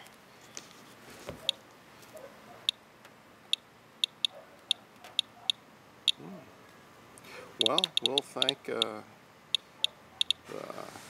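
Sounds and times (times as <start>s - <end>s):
geiger counter clicking: 3.5s - 4.3s, 7.6s - 8.9s.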